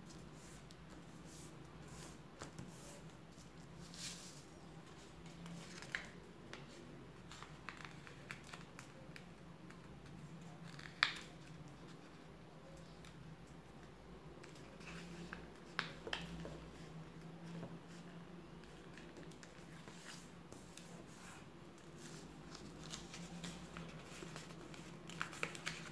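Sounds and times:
paper being folded and creased: 3.8s - 9.2s, 18.6s - 25.9s.

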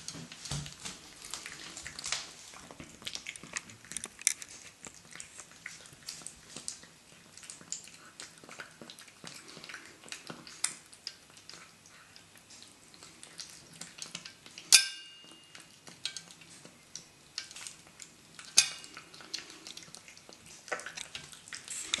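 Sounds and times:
cat chewing wet food: 0.0s - 22.0s
metal bowl clinking: 14.7s - 15.6s, 18.5s - 19.0s.

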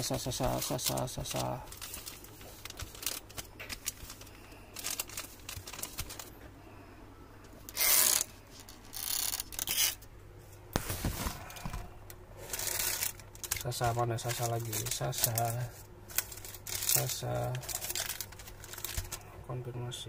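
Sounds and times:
plastic sachets crinkling: 0.0s - 6.4s, 7.6s - 10.0s, 12.4s - 19.3s.

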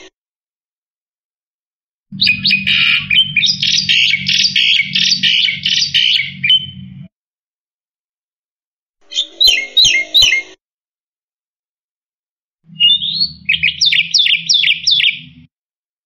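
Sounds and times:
bird singing harsh repeated notes: 2.1s - 7.1s, 9.0s - 10.6s, 12.7s - 15.5s.

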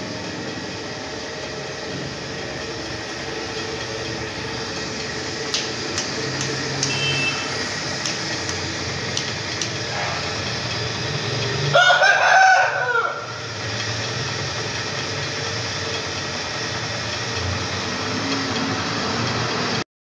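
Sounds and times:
steady background hum: 0.0s - 19.8s
sharp clicks: 4.8s - 7.0s, 7.9s - 9.9s.

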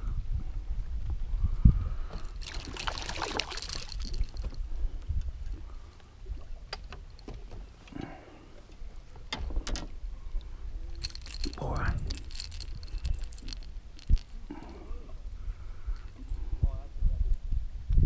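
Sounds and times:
fish splashing at surface: 2.1s - 4.6s.

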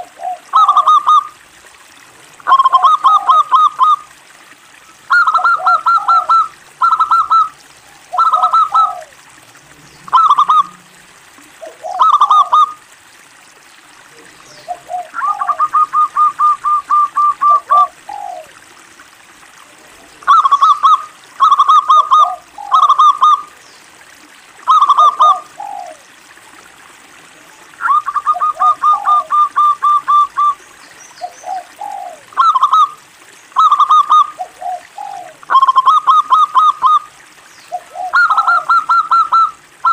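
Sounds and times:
dove cooing: 0.0s - 1.3s, 2.4s - 4.0s, 5.1s - 9.2s, 10.0s - 12.8s, 14.5s - 18.6s, 20.2s - 23.5s, 24.7s - 26.1s, 27.8s - 30.6s, 31.2s - 33.0s, 33.6s - 37.1s, 37.7s - 39.9s.

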